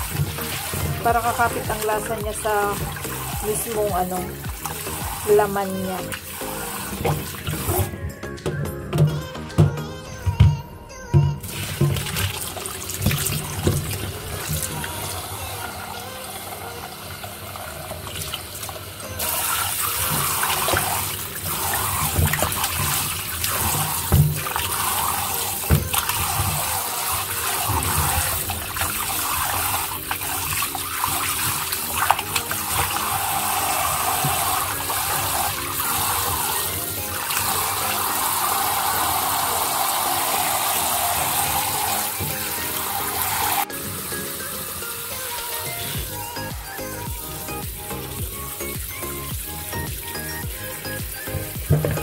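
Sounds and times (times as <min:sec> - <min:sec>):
hands rinsing chicken in water: 0:00.0 - 0:07.9, 0:17.7 - 0:44.0
tap running into a sink: 0:06.1 - 0:08.0, 0:18.1 - 0:43.6.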